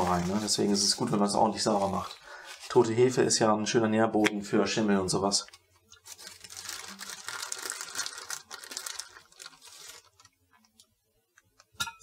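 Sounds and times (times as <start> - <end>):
plastic bag crinkling: 0.0 - 3.4, 5.4 - 10.8.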